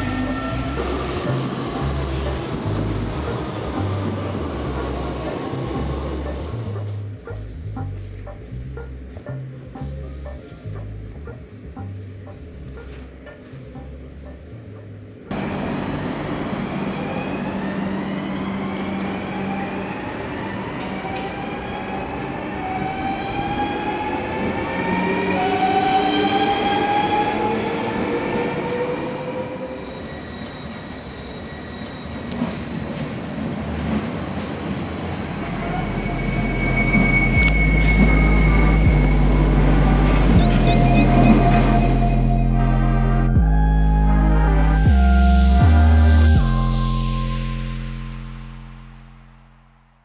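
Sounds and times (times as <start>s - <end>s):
wheels rumbling on rail: 0.0s - 7.3s, 10.9s - 42.8s
train traction motors whining: 0.0s - 32.6s.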